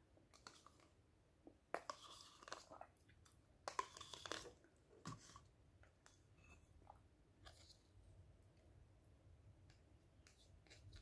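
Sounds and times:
spoon scraping plastic cup: 0.3 - 0.9, 1.7 - 2.9, 3.7 - 5.5.

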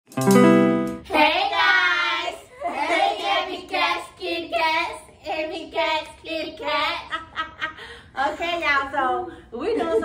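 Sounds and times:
girls singing together: 1.0 - 7.4.

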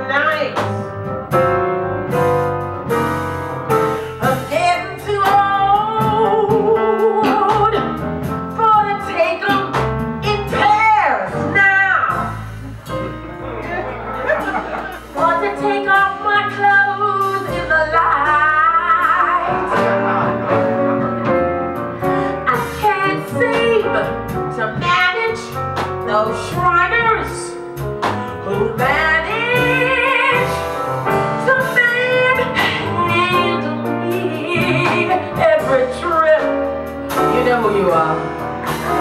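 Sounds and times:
small band with electric bass: 0.0 - 39.0
woman singing with vibrato: 4.2 - 7.8, 15.2 - 19.9, 28.4 - 30.6, 31.4 - 36.6.

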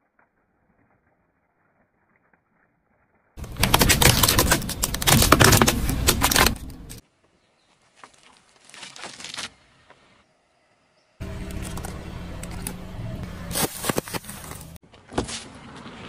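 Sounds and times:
plastic cracking and crunching: 3.4 - 7.0.

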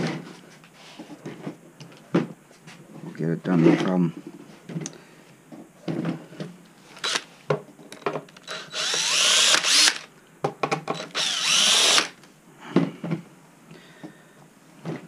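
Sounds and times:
cordless drill unscrewing: 7.0 - 7.3, 8.4 - 10.1, 11.0 - 12.2.

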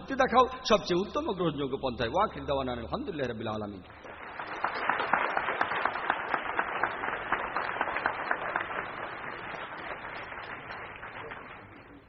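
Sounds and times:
audience applauding: 4.0 - 12.0.

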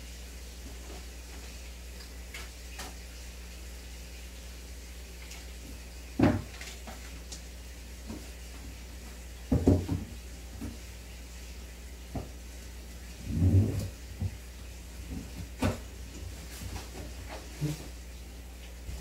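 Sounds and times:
aquarium air pump humming: 0.0 - 19.0
bubbling hiss: 7.5 - 15.3
dull knocks: 9.5 - 10.1.

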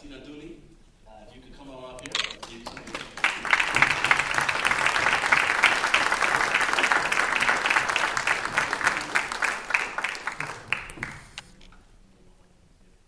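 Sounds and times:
audience applauding: 2.4 - 11.4.

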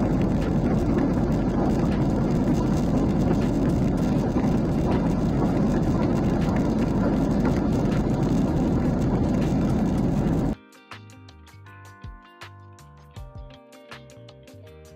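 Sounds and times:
jet airliner cabin noise: 0.0 - 10.6
soft music: 8.8 - 14.9.

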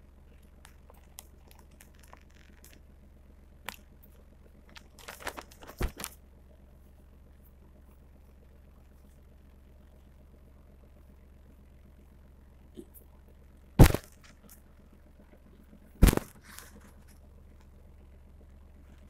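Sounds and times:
steady low hum: 0.0 - 19.0
plastic bag crinkling: 0.9 - 2.8, 4.7 - 6.2.

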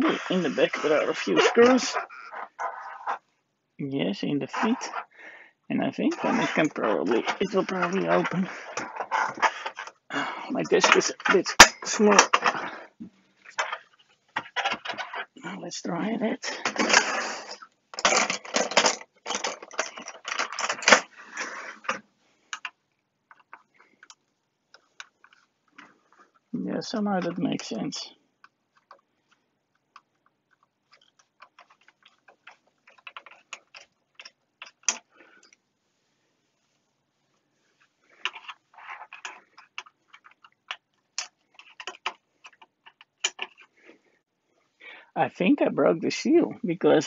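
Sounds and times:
metal tools clattering in drawer: 16.5 - 21.1
screwdriver scraping: 30.0 - 35.0, 38.2 - 43.7.

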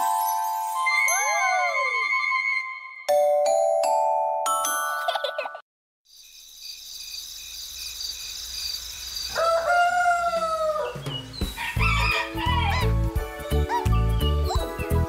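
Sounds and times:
children's music jingle: 0.0 - 5.6
rooster crowing: 9.3 - 11.0, 11.6 - 12.9.

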